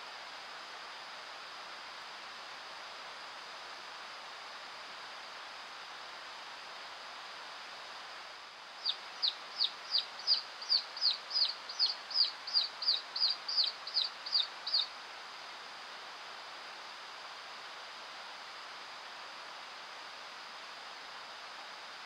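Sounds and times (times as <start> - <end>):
steady hiss: 0.0 - 22.0
recorded chick peeps: 8.8 - 14.9.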